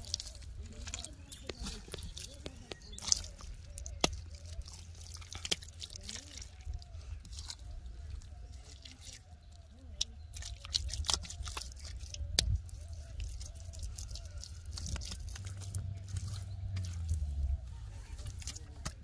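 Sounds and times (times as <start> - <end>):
hands slapping wet cement: 0.0 - 9.3, 9.9 - 17.3, 18.2 - 19.0
low rumble: 14.5 - 19.0.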